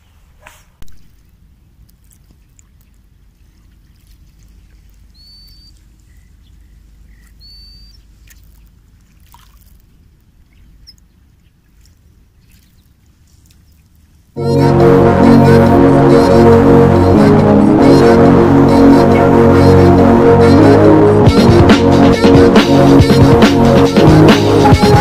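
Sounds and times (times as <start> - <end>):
small ripples lapping at shore: 0.9 - 14.4
bird chirping: 5.1 - 8.7.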